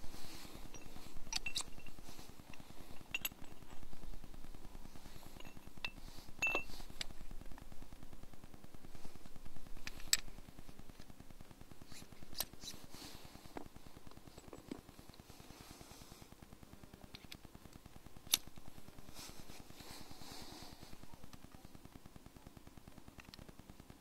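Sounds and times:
steady low rumble: 0.0s - 22.4s
sharp metallic clicks and clinks: 0.7s - 3.8s, 5.4s - 7.1s.

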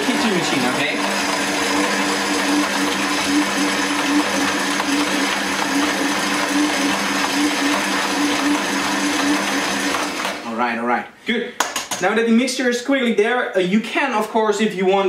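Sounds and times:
stand mixer motor humming: 0.0s - 10.4s.

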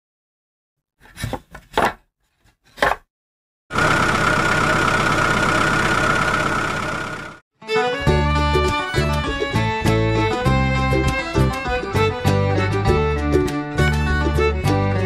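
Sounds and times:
truck engine running: 3.7s - 7.4s.

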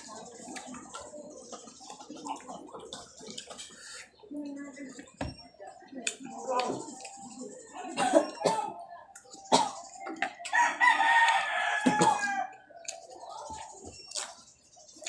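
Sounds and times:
rooster crowing: 10.5s - 12.6s.

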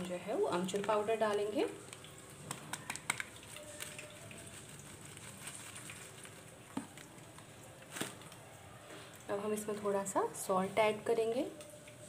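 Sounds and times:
okra sizzling in oil: 0.0s - 6.8s.

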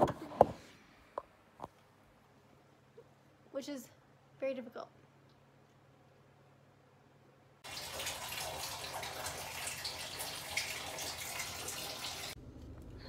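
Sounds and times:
water running from tap: 7.6s - 12.4s.

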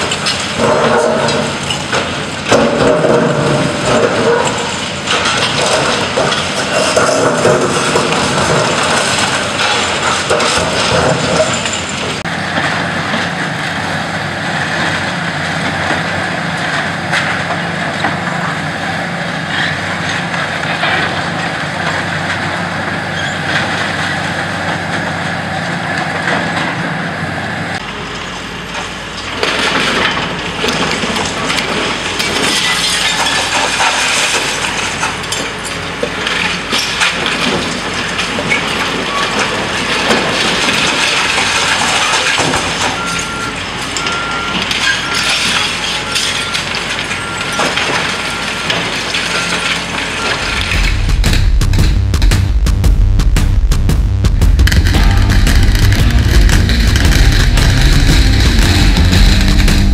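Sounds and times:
debris crashing and clattering: 0.0s - 13.4s, 29.2s - 53.2s, 54.1s - 59.9s
diesel engine running: 49.8s - 59.9s
concrete crunching: 50.0s - 59.9s.

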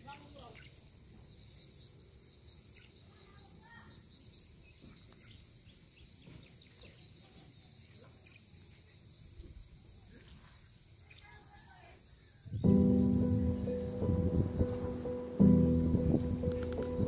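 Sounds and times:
insects chirping: 0.0s - 17.0s
low outdoor rumble: 12.7s - 17.0s.

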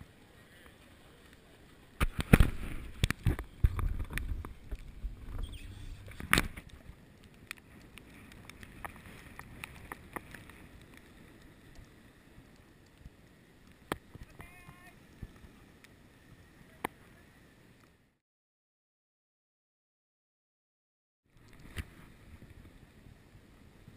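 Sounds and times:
low rumble: 3.6s - 6.8s.

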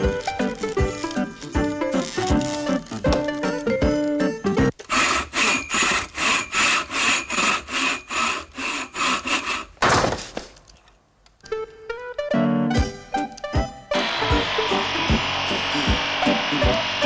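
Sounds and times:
background music: 0.0s - 4.8s, 11.4s - 17.0s
saw strokes: 4.8s - 9.8s, 14.0s - 17.0s.

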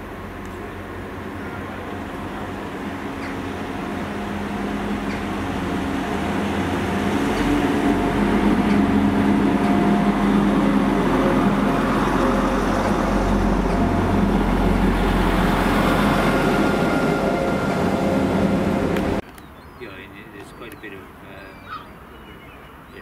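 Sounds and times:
diesel train engine hum: 0.0s - 19.2s.

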